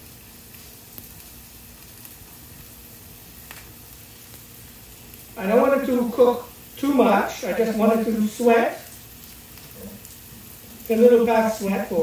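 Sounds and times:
onion sizzling in a frying pan: 0.0 - 12.0.

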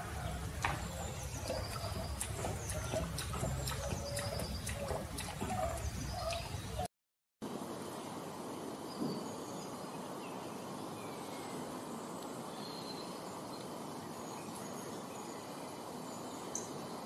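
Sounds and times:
faint bird chirps: 0.0 - 6.9
outdoor background hiss: 0.0 - 17.0.

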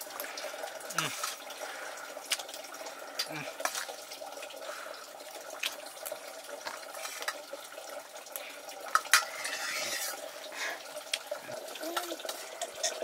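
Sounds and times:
running water: 0.0 - 13.0
pots and utensils clinking: 0.9 - 1.5, 3.2 - 4.0, 6.6 - 7.5, 8.8 - 10.8.

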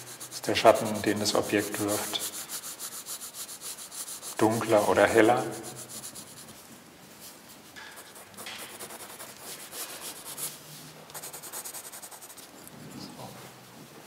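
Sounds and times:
pencil scratching on paper: 0.0 - 6.6, 7.8 - 12.5.

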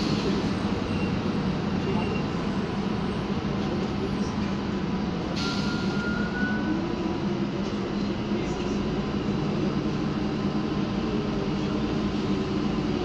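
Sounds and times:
bus engine and road noise drone: 0.0 - 13.0.

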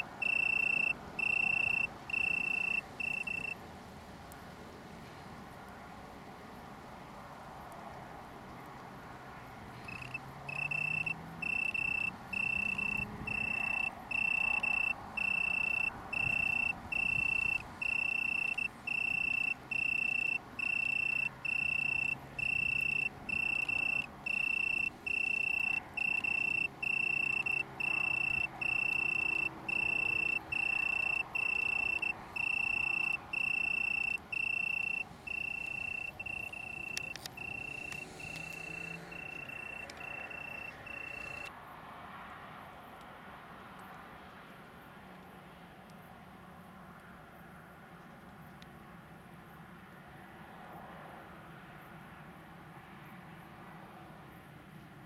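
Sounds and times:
tree cricket trilling: 0.0 - 3.6, 9.7 - 41.5.

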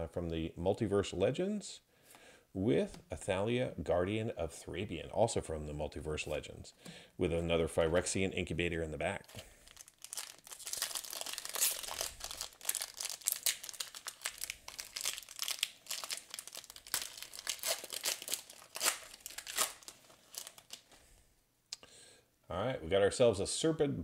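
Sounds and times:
plastic wrapper crinkling and tearing: 9.2 - 21.0.

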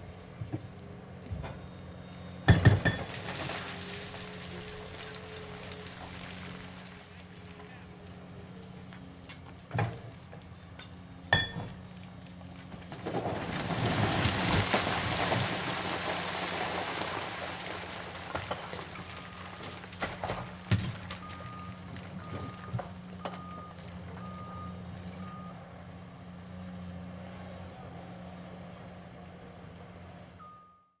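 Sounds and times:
diesel machinery running: 0.0 - 30.7
rubble rumbling and sliding: 3.0 - 10.8, 11.7 - 24.2
concrete crashing down: 12.8 - 22.8
reversing alarm beeping: 21.2 - 25.6, 30.4 - 31.0.

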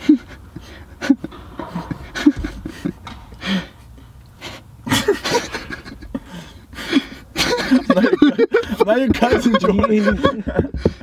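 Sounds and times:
men laughing: 0.0 - 11.0
men's voices: 7.4 - 11.0.

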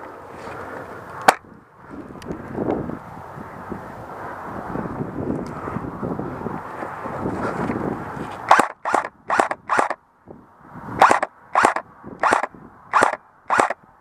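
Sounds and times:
wind noise on microphone: 0.6 - 14.0.

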